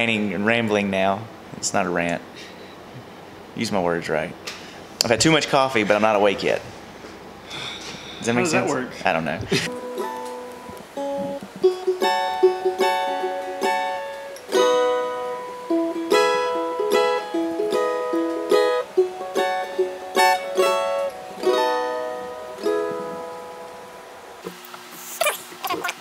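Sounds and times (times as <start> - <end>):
plucked string instrument melody: 9.6 - 24.4.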